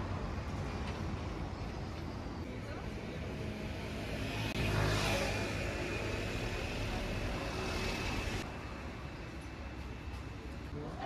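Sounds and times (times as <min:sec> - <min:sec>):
steady traffic hum: 0:00.0 - 0:11.0
motor vehicle passing: 0:03.3 - 0:08.5.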